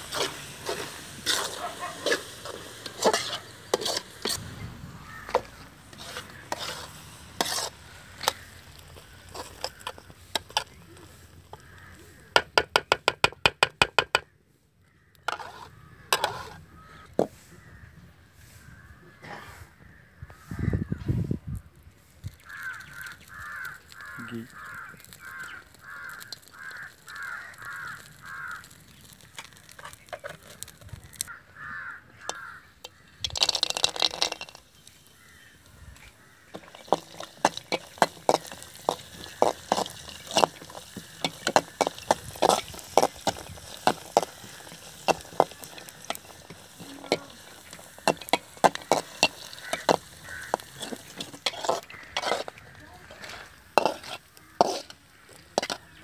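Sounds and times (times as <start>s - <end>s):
metal spoon scraping a pan: 0.0s - 4.5s, 5.1s - 12.0s, 15.2s - 17.6s, 22.4s - 31.3s, 32.2s - 35.1s, 36.5s - 56.0s
crow cawing: 4.9s - 7.0s, 11.5s - 12.4s, 14.2s - 21.0s, 22.4s - 28.8s, 31.3s - 33.2s, 35.1s - 37.3s, 38.2s - 55.7s.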